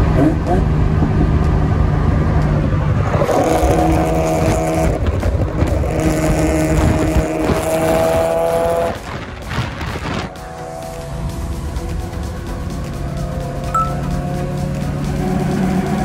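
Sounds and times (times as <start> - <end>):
car engine: 0.0 - 16.0
road noise: 0.0 - 16.0.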